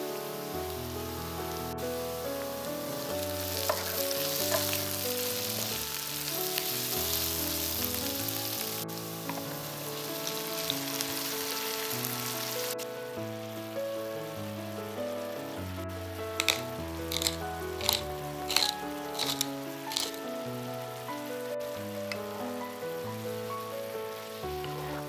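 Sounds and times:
food sizzling in a frying pan: 0.0s - 12.8s, 15.3s - 25.0s
background music with held chords: 0.0s - 25.0s
utensil clicks: 16.4s - 20.2s.

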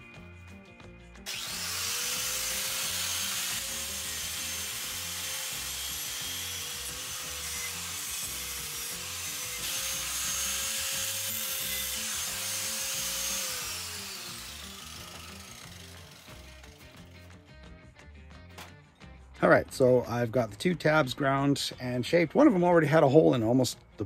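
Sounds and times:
angle grinder grinding steel: 1.2s - 17.4s.

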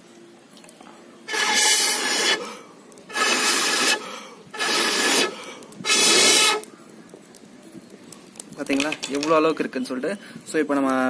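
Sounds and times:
person blowing on embers: 1.1s - 7.4s.

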